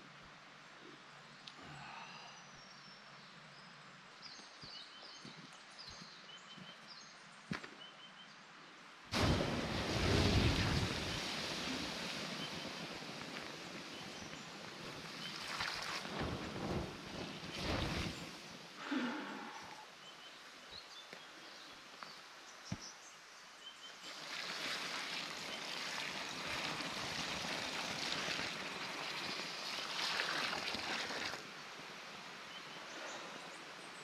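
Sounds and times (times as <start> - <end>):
water hissing on campfire: 1.5 - 2.7, 9.1 - 34.0.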